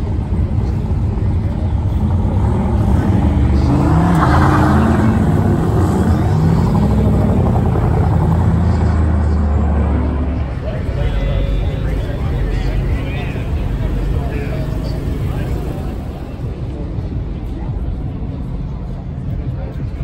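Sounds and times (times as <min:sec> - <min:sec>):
engines low rumble: 0:00.0 - 0:20.0
truck engine revving: 0:01.9 - 0:16.5.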